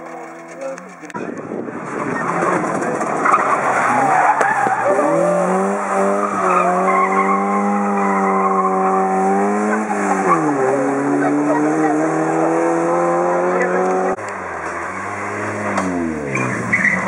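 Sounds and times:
car engine revving hard: 2.3s - 17.0s
tyre squeal: 6.2s - 9.1s.

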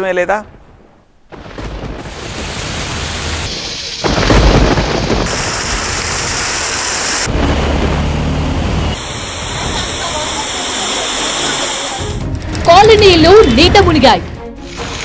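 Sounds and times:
thunderclap rumbling: 0.4s - 10.8s
heavy rain pouring: 1.3s - 15.0s.

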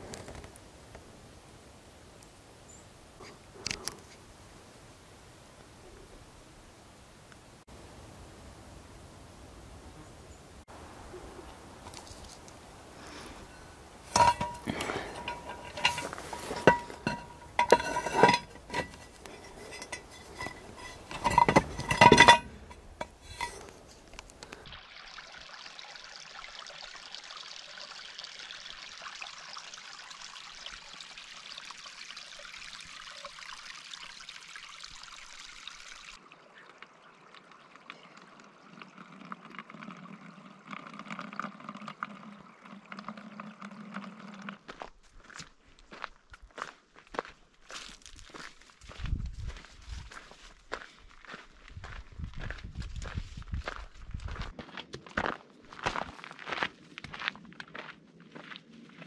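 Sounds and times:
metal items clinking: 14.0s - 24.0s.

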